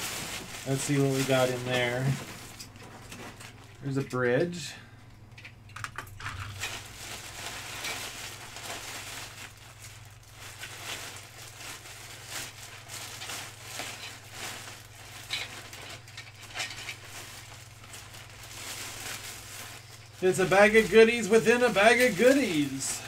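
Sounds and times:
plastic bag crinkling: 0.0 - 4.0, 6.1 - 23.0.

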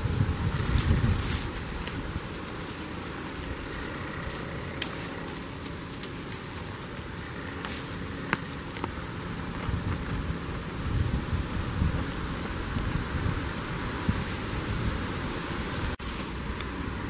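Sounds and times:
goat chewing leaves and twigs: 0.0 - 11.2
steady background hiss: 0.0 - 17.0
twigs snapping: 0.5 - 10.2.

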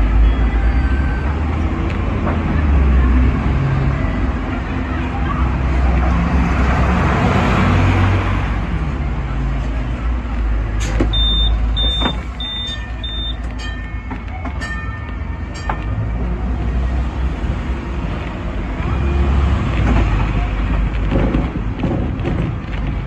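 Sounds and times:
tram rumble: 0.0 - 23.0
short electronic beeps: 11.1 - 13.4.

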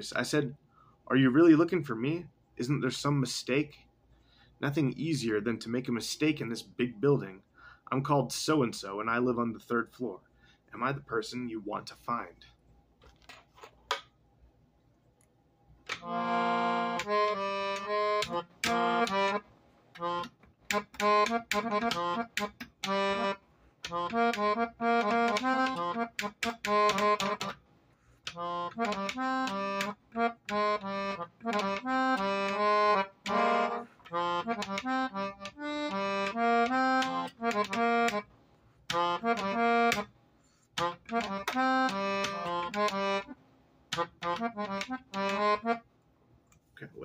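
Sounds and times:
accordion chords: 15.9 - 27.6, 28.2 - 38.3, 38.9 - 40.1, 40.7 - 45.9.

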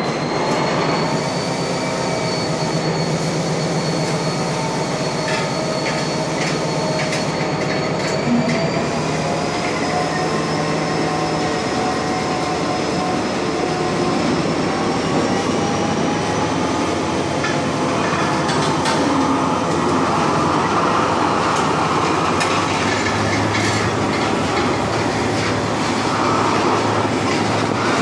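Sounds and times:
high squealing tones: 0.0 - 16.8
steel wheels rumbling on rail: 0.0 - 28.0.

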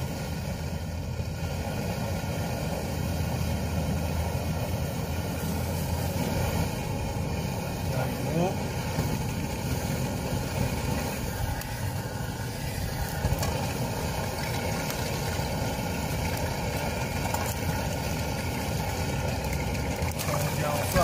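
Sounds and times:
gas stove burner roaring: 0.0 - 21.0
oil sizzling: 0.0 - 21.0.

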